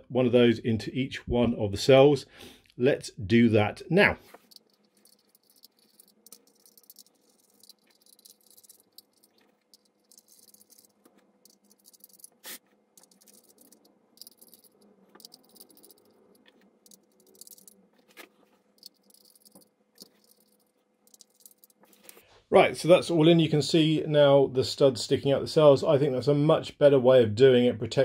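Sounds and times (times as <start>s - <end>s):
small metallic clicks and rattles: 4.3s - 22.2s.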